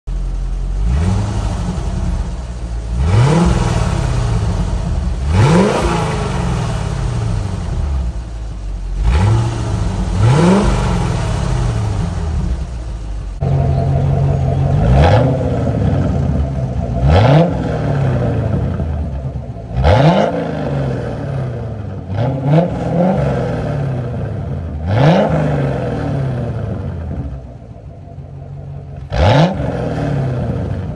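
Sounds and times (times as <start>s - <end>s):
car engine idling and revving: 0.0s - 30.9s.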